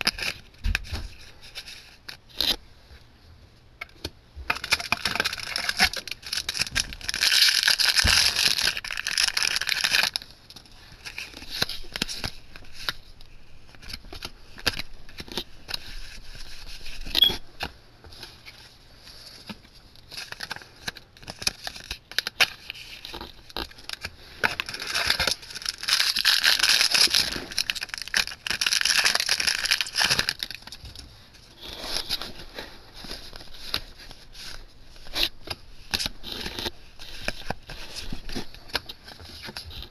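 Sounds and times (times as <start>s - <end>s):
foil wrappers tearing and crinkling: 4.5s - 13.1s, 19.4s - 39.9s.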